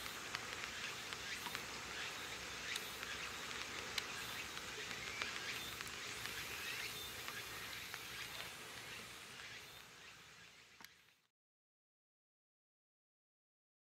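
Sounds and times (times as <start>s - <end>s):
faint clicks: 0.0s - 11.2s
insects chirring: 0.0s - 11.2s.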